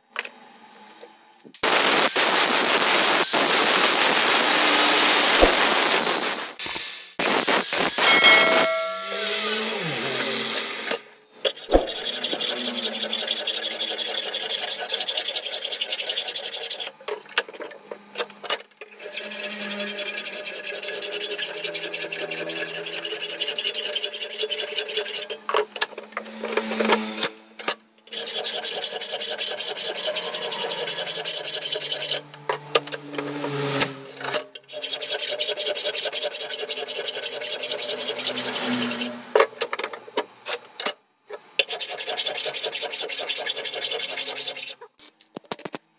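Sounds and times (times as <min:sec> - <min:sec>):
file rasping on steel: 0:11.5 - 0:17.0, 0:18.9 - 0:25.4, 0:28.1 - 0:39.4, 0:41.6 - 0:44.9.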